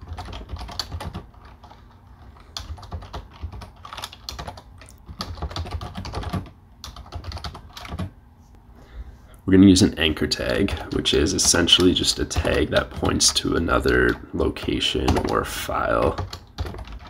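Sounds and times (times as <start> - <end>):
computer keyboard typing: 0.0 - 8.1, 10.4 - 17.0.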